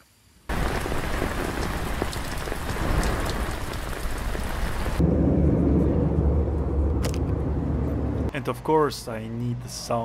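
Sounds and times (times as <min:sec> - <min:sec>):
rain falling on leaves: 0:00.5 - 0:05.0
airliner cabin drone: 0:05.0 - 0:08.3.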